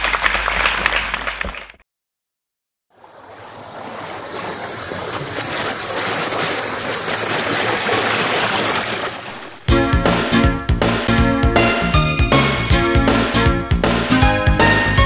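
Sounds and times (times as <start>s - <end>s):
river water rushing over boulders: 3.0s - 9.7s.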